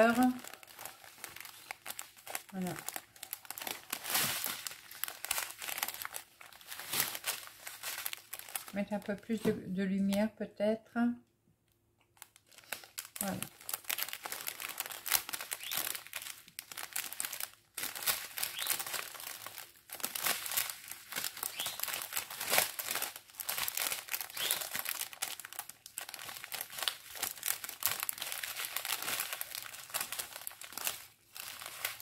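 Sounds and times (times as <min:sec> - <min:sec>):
plastic bags crinkling: 0:00.0 - 0:09.4, 0:12.2 - 0:32.0.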